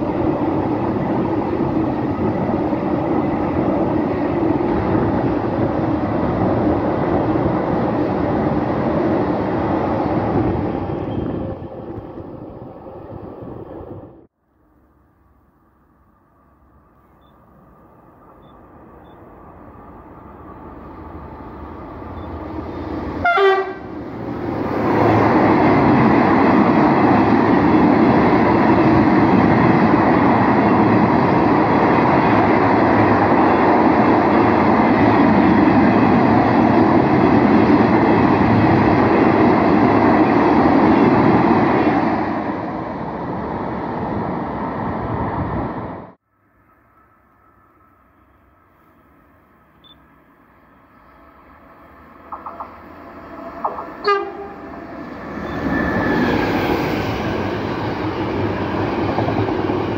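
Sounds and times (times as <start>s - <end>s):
train passing at speed: 0.0s - 59.9s
wheels rushing on rail: 0.0s - 59.9s
short train horn note: 23.2s - 23.9s, 54.0s - 54.7s.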